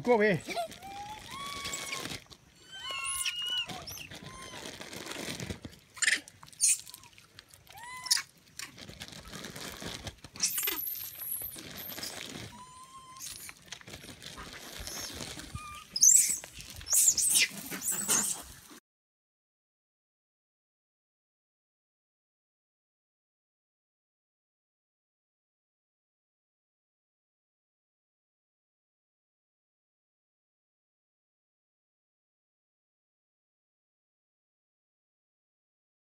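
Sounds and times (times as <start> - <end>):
monkeys high-pitched shrieks: 0.4 - 5.0, 6.0 - 8.3, 10.4 - 18.6
monkeys squealing and screeching: 0.4 - 5.0, 6.0 - 8.3, 10.4 - 13.6, 14.4 - 18.6.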